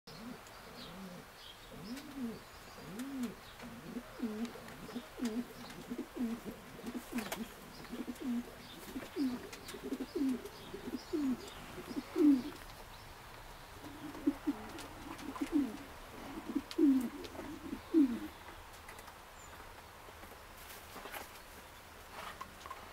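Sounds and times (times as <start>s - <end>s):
pigeons cooing: 0.1s - 12.7s, 13.8s - 18.4s.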